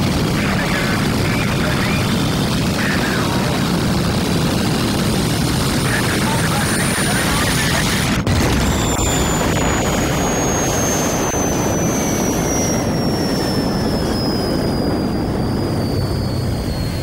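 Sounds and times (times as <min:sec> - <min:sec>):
high turbine whine: 0:00.0 - 0:17.0
jet engine roaring: 0:00.0 - 0:17.0.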